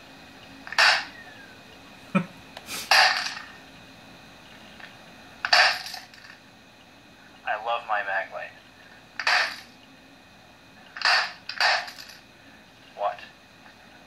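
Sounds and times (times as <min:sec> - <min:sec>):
flashlight banging on laptop: 0:09.2 - 0:09.6, 0:11.0 - 0:12.0.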